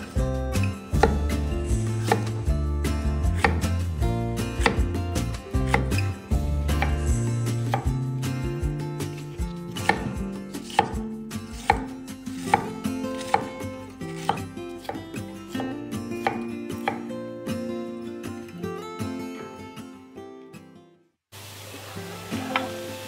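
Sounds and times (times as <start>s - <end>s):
soft background music: 0.0s - 19.6s
knife chopping on cutting board: 0.6s - 2.5s, 3.3s - 3.8s, 4.6s - 6.1s, 6.7s - 7.1s, 9.1s - 13.5s, 14.2s - 17.0s.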